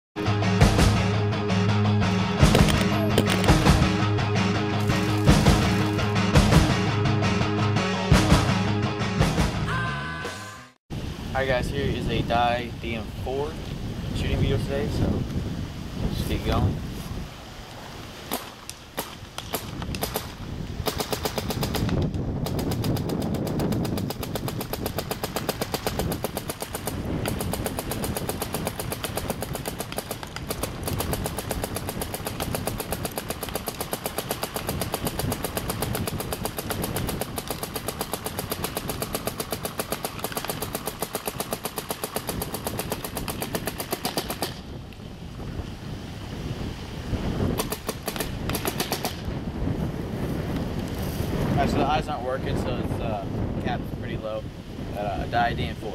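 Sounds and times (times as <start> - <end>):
paintball marker firing: 2.4 - 3.7, 18.3 - 44.7, 47.5 - 49.3.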